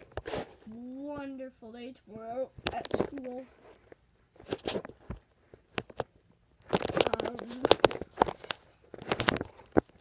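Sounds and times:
phone handling rustling: 0:04.4 - 0:10.0.

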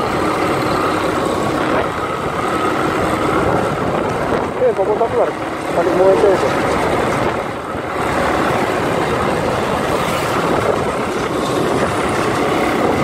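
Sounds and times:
motorcycle road noise: 0:00.0 - 0:13.0
wind rushing: 0:01.1 - 0:04.8, 0:06.2 - 0:13.0.

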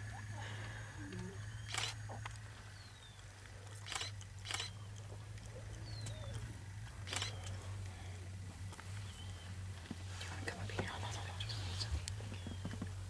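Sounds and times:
steady low hum: 0:00.0 - 0:13.0
camera shutter clicks: 0:01.7 - 0:02.0, 0:03.8 - 0:04.8, 0:07.0 - 0:07.6.

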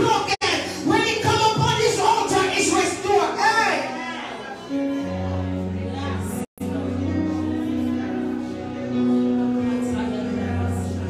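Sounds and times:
background music of held chords: 0:04.7 - 0:11.0.

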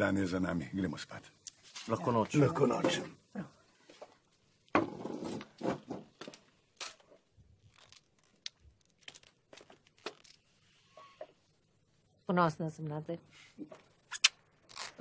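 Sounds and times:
chair scrape and rustle: 0:04.8 - 0:06.2.

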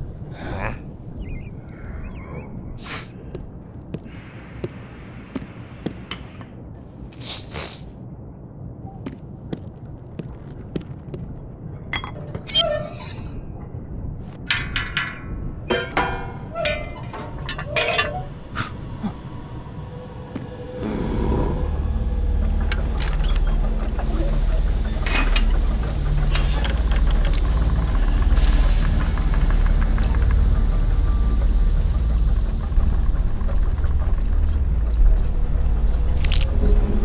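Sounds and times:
loud low drone: 0:18.4 - 0:37.0.

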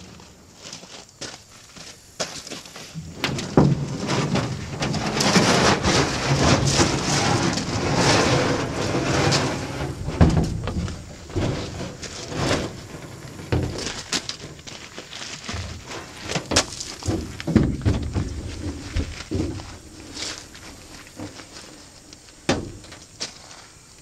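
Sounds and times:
canoe hull scraping and rumbling: 0:02.9 - 0:23.5.

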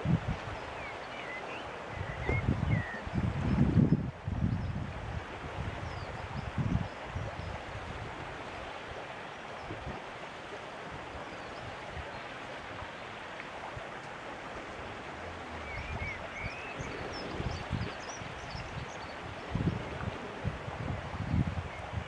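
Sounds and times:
wind gusting on microphone: 0:00.0 - 0:00.8, 0:01.8 - 0:08.7, 0:13.7 - 0:22.0
rushing water: 0:00.0 - 0:22.0.

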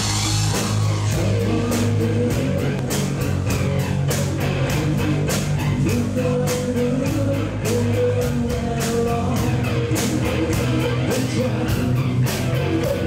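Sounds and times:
person singing: 0:00.0 - 0:03.6, 0:04.4 - 0:13.0
bass guitar: 0:00.0 - 0:13.0
drum and cymbal hits: 0:00.0 - 0:13.0
electric guitars: 0:00.0 - 0:13.0.

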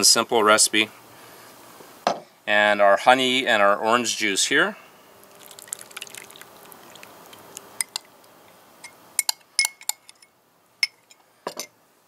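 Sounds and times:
metal spoon clinking on glass: 0:08.8 - 0:11.0.

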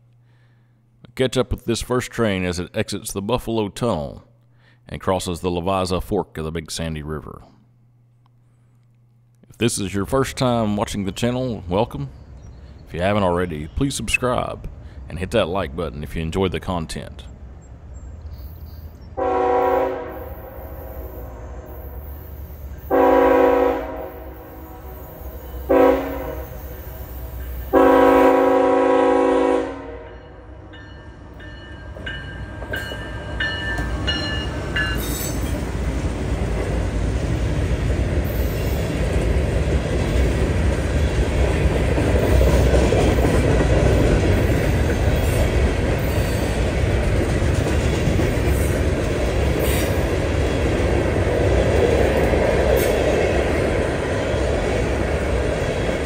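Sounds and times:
freight train rumbling past: 0:09.8 - 0:56.0
locomotive air horn blasts: 0:19.2 - 0:22.0, 0:22.8 - 0:26.8, 0:27.7 - 0:30.6
train wheels clicking: 0:31.4 - 0:53.8.

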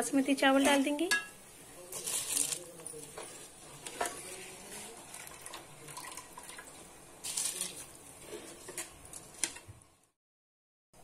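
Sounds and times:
water boiling and bubbling: 0:04.3 - 0:09.7.

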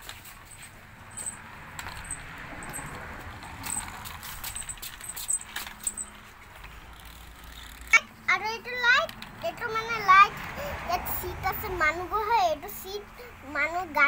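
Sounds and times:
plastic toy car clicks: 0:09.0 - 0:09.6.

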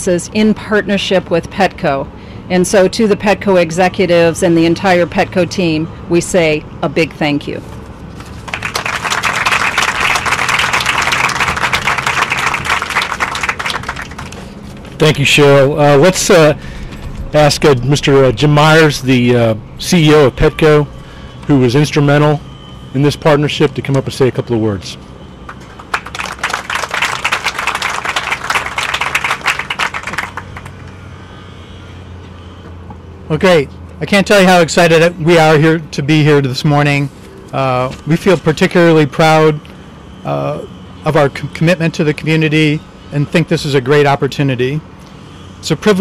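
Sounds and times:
audience applauding: 0:08.3 - 0:14.6, 0:25.5 - 0:30.8.

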